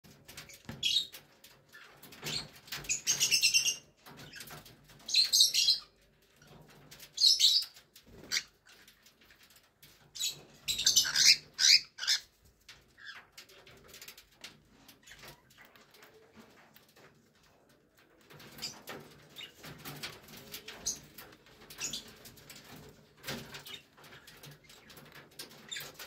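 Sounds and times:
cockatiels chirping: 0:10.3 - 0:12.3.

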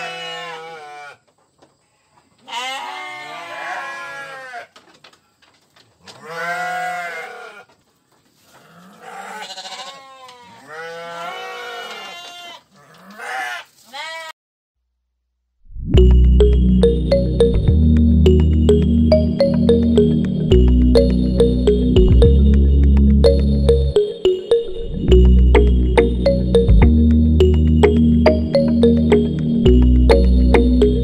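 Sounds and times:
sheep bleating: 0:00.0 - 0:01.2, 0:02.4 - 0:04.7, 0:06.2 - 0:07.7, 0:08.6 - 0:14.3.

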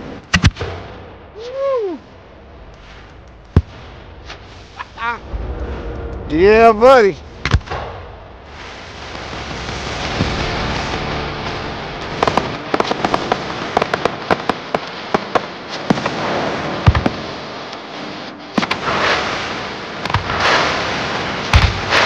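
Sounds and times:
fireworks cracking: 0:02.6 - 0:17.2
fireworks hissing rush: 0:02.7 - 0:16.6
firework boom: 0:03.0 - 0:12.6.

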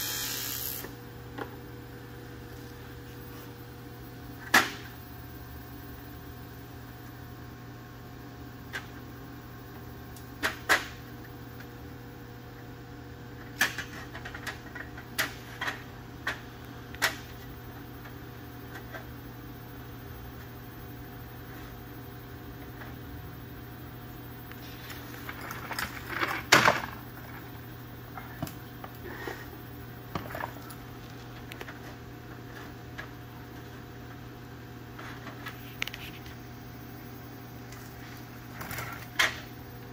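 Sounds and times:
electrical hum: 0:00.0 - 0:39.9.

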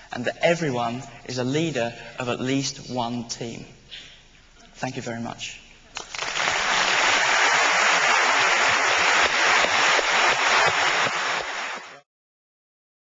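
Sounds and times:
audience applauding: 0:06.0 - 0:12.1.

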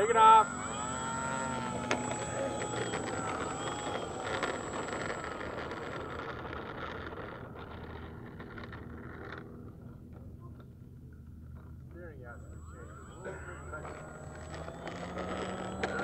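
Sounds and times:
high steady whine: 0:00.0 - 0:16.0
model airplane motor running: 0:00.0 - 0:16.0.

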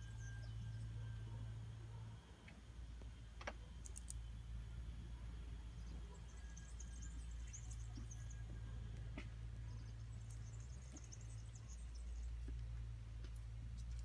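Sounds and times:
faint high chirping: 0:00.0 - 0:02.5, 0:03.6 - 0:12.7
steady low hum: 0:00.0 - 0:14.0
sharp clicks: 0:03.4 - 0:04.2.

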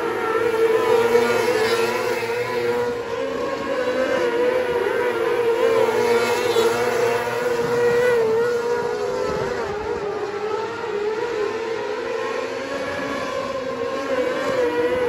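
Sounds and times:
racing car engines at high revs: 0:00.0 - 0:15.0.

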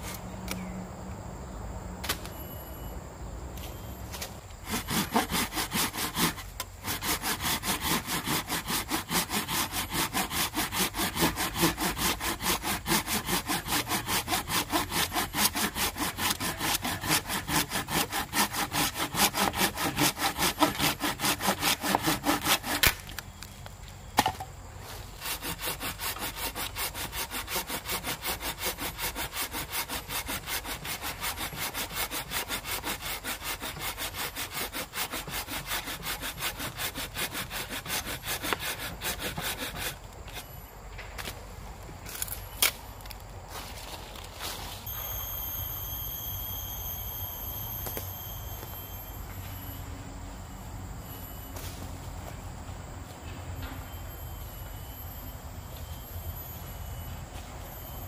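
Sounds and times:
hand saw cutting wood: 0:04.6 - 0:23.1, 0:25.2 - 0:40.5.

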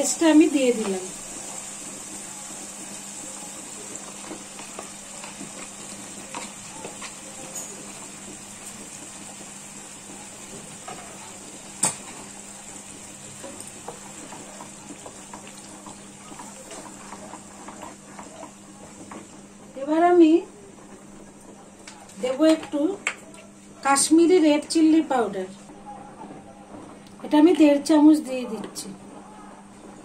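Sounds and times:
paste sizzling in hot oil: 0:00.0 - 0:19.5
wooden spatula stirring: 0:00.6 - 0:19.8.

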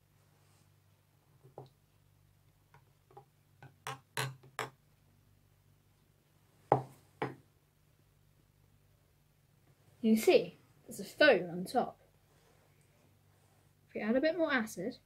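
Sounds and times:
faint low hum: 0:00.0 - 0:15.0
spoon tapping plastic cup: 0:03.2 - 0:04.8.

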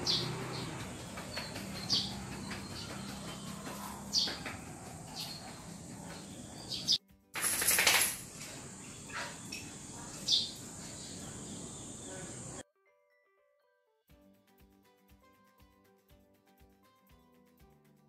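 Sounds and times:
small birds chirping: 0:00.0 - 0:07.0, 0:08.2 - 0:12.6.

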